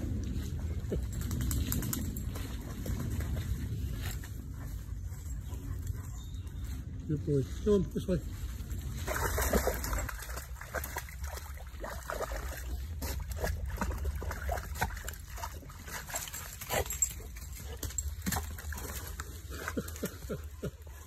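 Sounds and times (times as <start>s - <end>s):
dog splashing in water: 8.8s - 20.9s.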